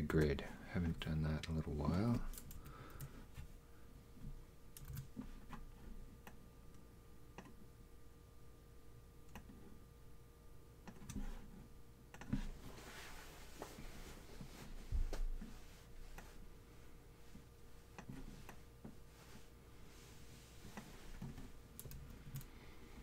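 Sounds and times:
faint steady hum: 0:00.0 - 0:23.0
computer mouse clicks: 0:04.7 - 0:05.6, 0:07.4 - 0:07.6, 0:09.3 - 0:09.6, 0:10.8 - 0:11.2, 0:12.1 - 0:12.4, 0:20.7 - 0:22.5.

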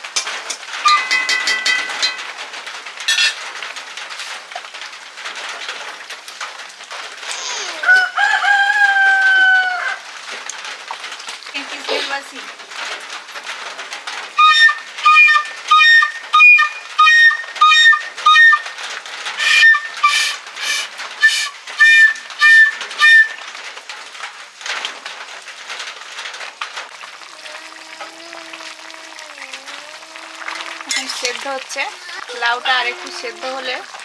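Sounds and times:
toy trumpet toots: 0:03.1 - 0:03.4, 0:14.4 - 0:18.7, 0:19.4 - 0:23.4.

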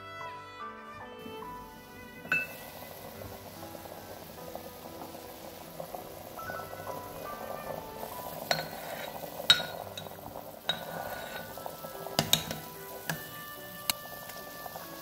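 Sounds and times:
soup bubbling: 0:01.4 - 0:15.0
spoon clinking against pot: 0:02.3 - 0:02.7, 0:08.4 - 0:14.0.

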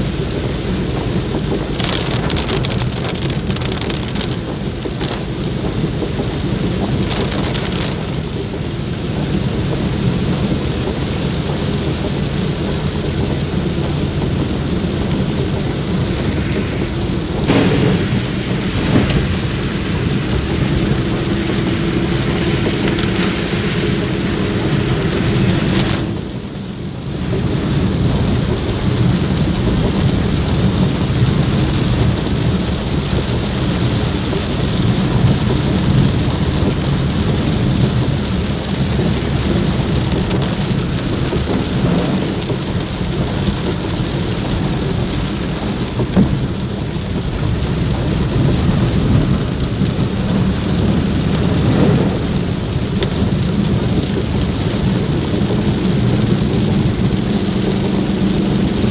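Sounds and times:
rain hissing on glass: 0:00.0 - 0:58.9
low rumble: 0:00.1 - 0:33.4.

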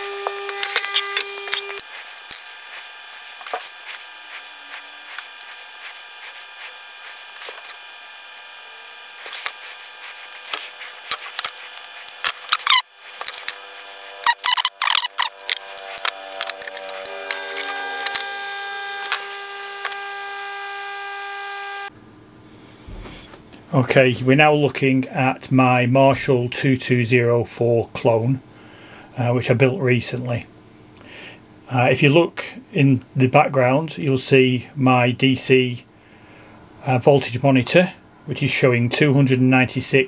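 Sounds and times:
steady multi-tone hum: 0:00.0 - 0:40.0.

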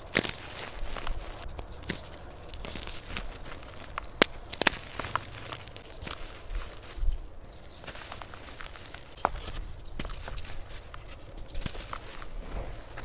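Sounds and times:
chalk snapping: 0:00.0 - 0:06.9
chalk crunching and crackling: 0:00.0 - 0:13.0.

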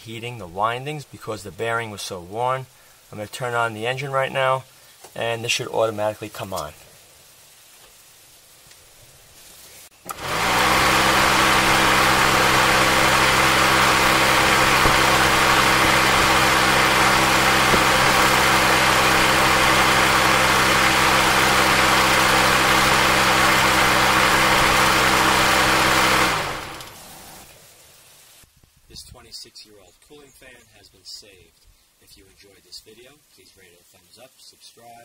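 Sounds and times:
radiator fan motor whirring: 0:10.0 - 0:27.5.

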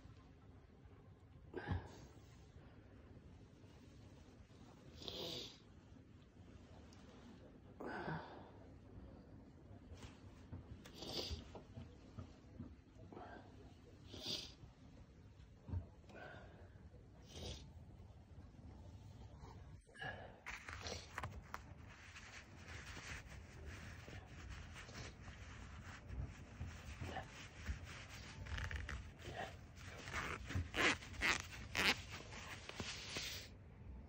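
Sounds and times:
fabric rustling and scraping: 0:20.4 - 0:33.5.

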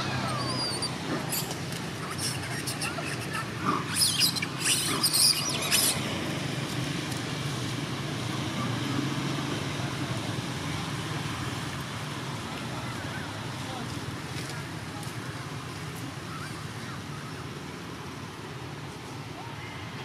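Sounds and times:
monkeys squealing: 0:00.0 - 0:06.1.

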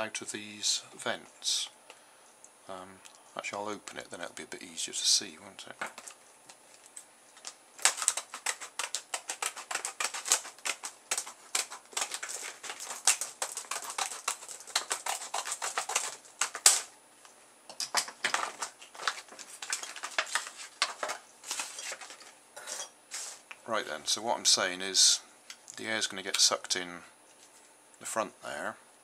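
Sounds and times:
scissors snipping plastic: 0:07.4 - 0:16.9.

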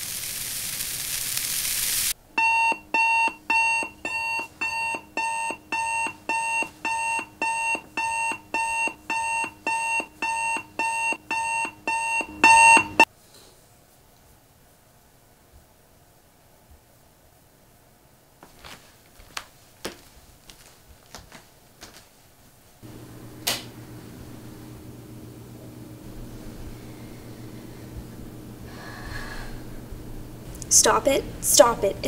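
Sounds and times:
steady hiss: 0:00.0 - 0:02.2
alarm clock beeping: 0:02.4 - 0:13.1.

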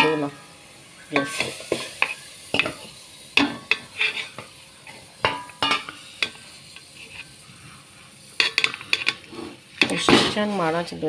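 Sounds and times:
bowl clinking against metal pan: 0:05.2 - 0:06.0.

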